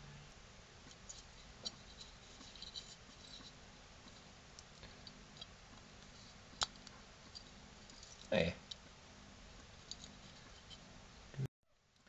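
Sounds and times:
fingers handling metal and cable: 0:00.9 - 0:08.8, 0:09.7 - 0:10.9.

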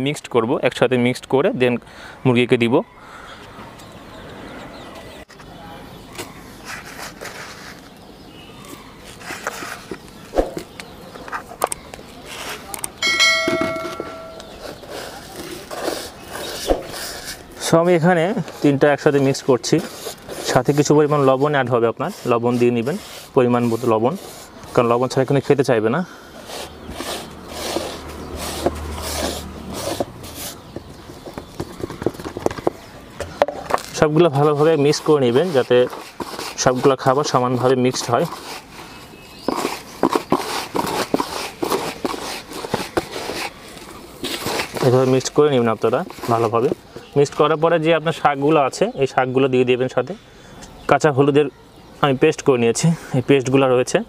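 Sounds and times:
hands sweeping grain on plastic: 0:06.6 - 0:08.0, 0:18.4 - 0:25.6, 0:26.4 - 0:30.7, 0:34.0 - 0:46.8.

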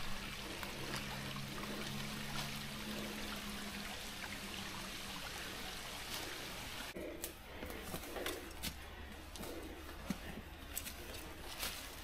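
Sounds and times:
stream trickling: 0:00.0 - 0:07.4
low steady hum: 0:00.0 - 0:12.0
footsteps on rocky trail: 0:07.0 - 0:12.0.

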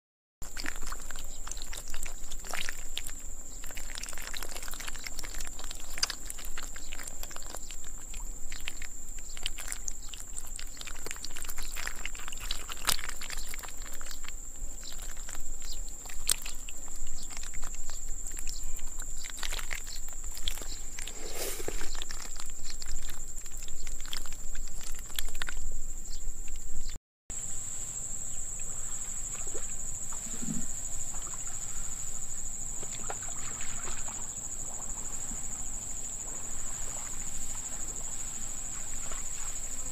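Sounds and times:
fish flapping and splashing: 0:00.4 - 0:25.7, 0:32.7 - 0:35.3
high-pitched insect drone: 0:27.4 - 0:39.9.

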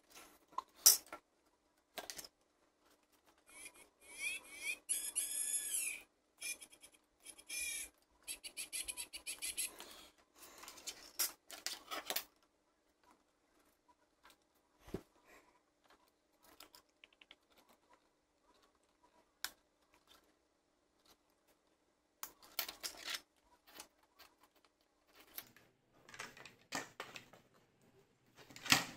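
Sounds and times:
plastic squeaky scraping and rubbing: 0:02.8 - 0:12.2
plastic clicks and scratches: 0:10.6 - 0:15.2, 0:15.8 - 0:27.6.

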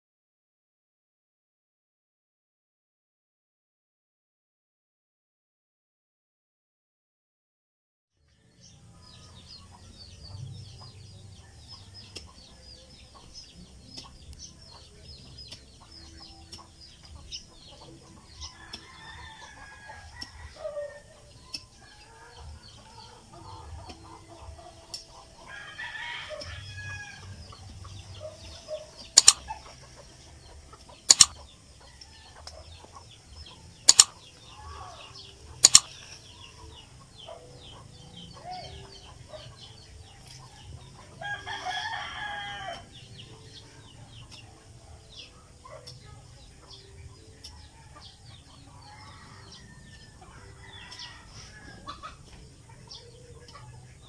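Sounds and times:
chickens clucking: 0:08.7 - 0:54.0
rooster crowing: 0:18.5 - 0:21.2, 0:25.4 - 0:27.4, 0:41.2 - 0:42.9, 0:48.9 - 0:52.0.

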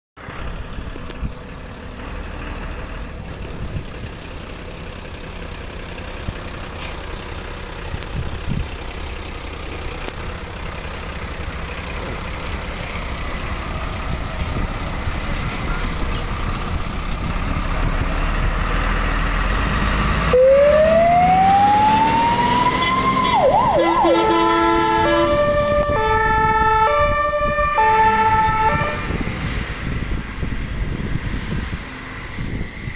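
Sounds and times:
diesel engine running: 0:00.2 - 0:32.9
siren wailing: 0:20.3 - 0:29.1
horns alternating notes: 0:20.4 - 0:29.2.

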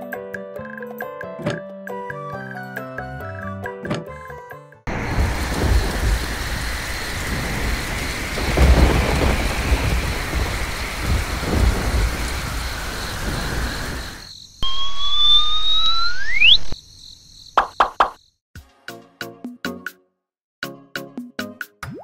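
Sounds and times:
heavy rain: 0:04.9 - 0:14.3
thunder rolling: 0:04.9 - 0:14.3
cartoon whistle sliding upward: 0:14.6 - 0:16.8.

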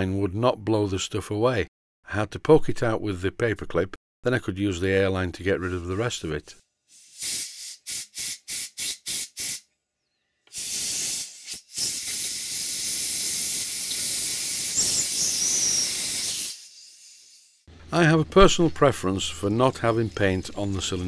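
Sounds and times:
compressed air hissing: 0:06.9 - 0:09.6, 0:10.5 - 0:17.6
compressed air puffs: 0:06.9 - 0:09.6, 0:10.5 - 0:16.6.

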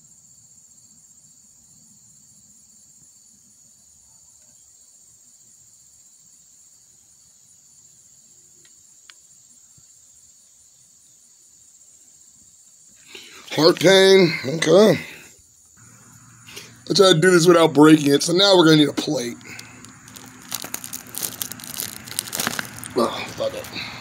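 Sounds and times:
insects chirring: 0:00.0 - 0:24.0.

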